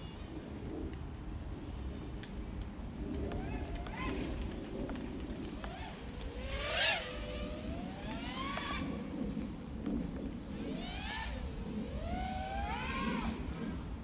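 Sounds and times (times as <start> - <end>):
drone propellers whining: 5.6 - 14.0.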